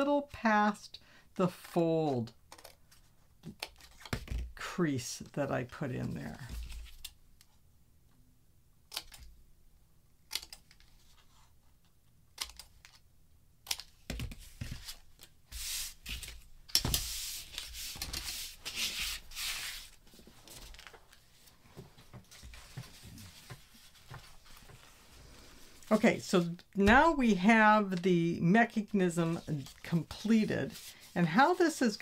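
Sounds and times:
paper sliding and rustling: 14.4s - 25.9s, 30.4s - 31.2s.

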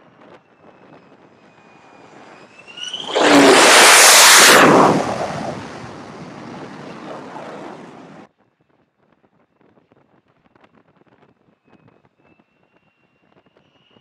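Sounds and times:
jet engine roaring overhead: 0.0s - 8.3s.

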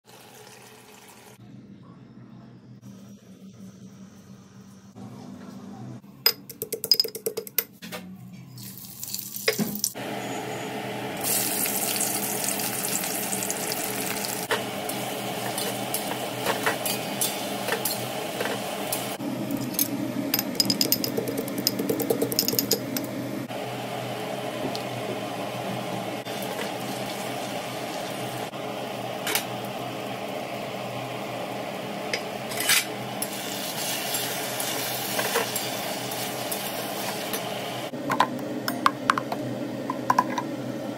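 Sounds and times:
frying sizzle: 8.6s - 19.2s, 23.5s - 37.9s.

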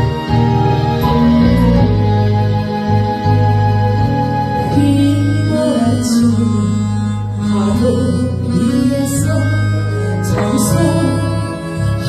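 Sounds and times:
amplified instrumental accompaniment: 0.0s - 12.0s
woman singing into a microphone: 4.6s - 12.0s.

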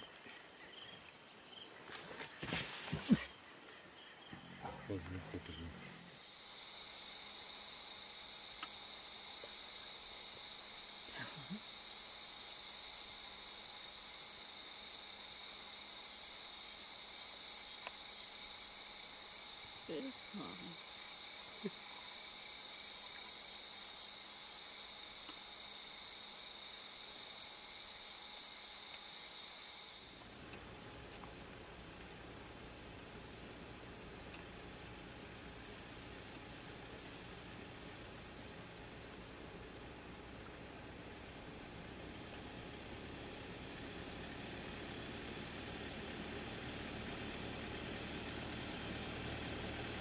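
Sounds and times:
night insects trilling: 0.0s - 50.0s.

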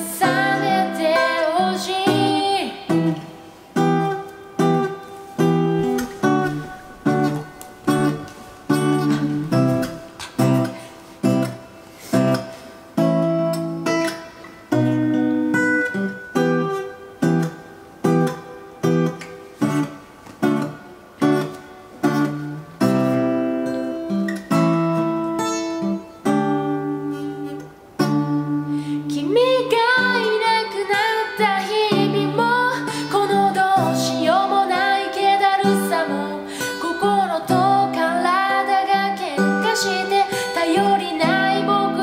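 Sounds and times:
person singing: 0.0s - 12.2s, 28.2s - 42.0s
acoustic guitar strumming chords: 0.0s - 42.0s.

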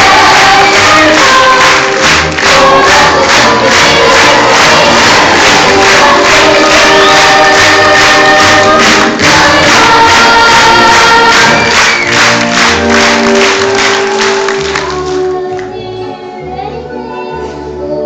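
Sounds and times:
cast singing a chorus: 0.0s - 11.6s
instrumental accompaniment: 0.0s - 18.0s.

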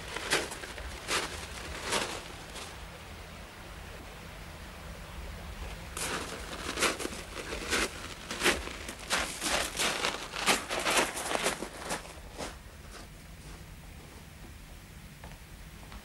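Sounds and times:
short crunching rustling noises: 0.0s - 2.8s, 5.7s - 14.2s
faint low hum: 0.0s - 16.0s.

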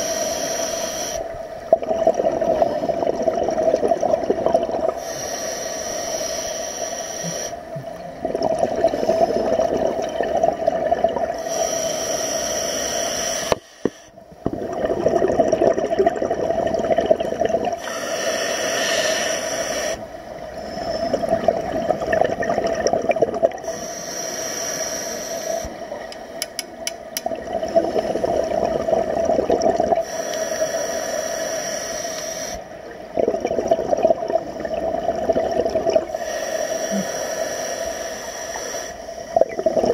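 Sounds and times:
diver breathing through regulator: 0.0s - 1.3s, 4.9s - 7.7s, 11.4s - 14.2s, 17.8s - 21.6s, 23.6s - 25.8s, 30.0s - 32.7s, 36.1s - 39.8s
exhaled bubbles rushing: 1.5s - 5.0s, 7.8s - 11.4s, 14.4s - 17.8s, 20.8s - 23.6s, 27.3s - 30.0s, 32.8s - 36.2s, 39.3s - 39.9s.

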